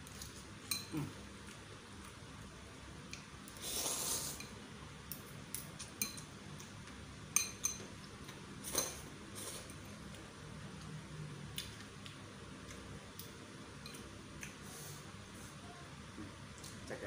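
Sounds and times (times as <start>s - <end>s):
cutlery clinking against bowl: 0.6s - 0.9s, 5.1s - 6.3s, 7.3s - 8.0s
slurping noodles: 3.6s - 4.4s.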